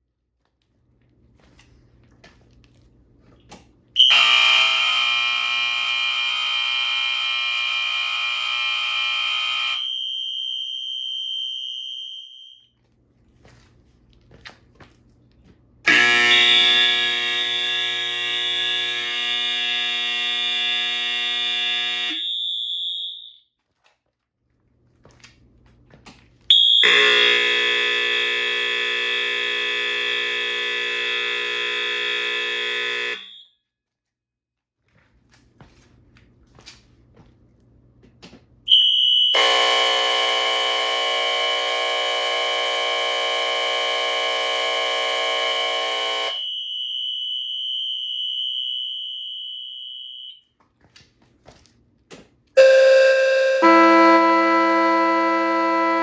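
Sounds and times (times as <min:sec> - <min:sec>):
fire alarm blasts: 0:04.0 - 0:12.8, 0:15.8 - 0:23.5, 0:26.5 - 0:33.6, 0:38.7 - 0:50.6, 0:52.6 - 0:56.0
high ringing note: 0:52.6 - 0:56.0.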